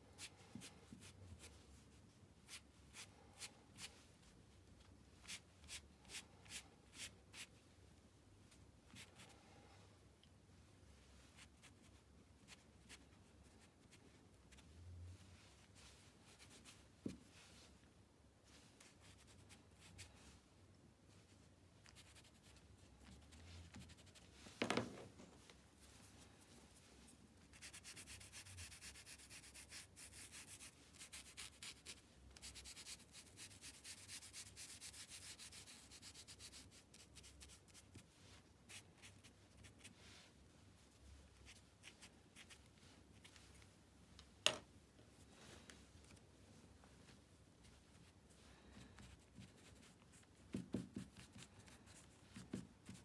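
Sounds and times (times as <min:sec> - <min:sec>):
brush scratching on paper: 0:21.8 - 0:24.4, 0:27.5 - 0:40.3, 0:49.0 - 0:53.0.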